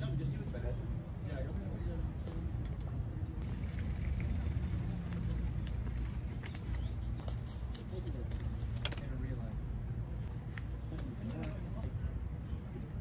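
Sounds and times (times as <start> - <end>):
low steady rumble: 3.1 - 7.2.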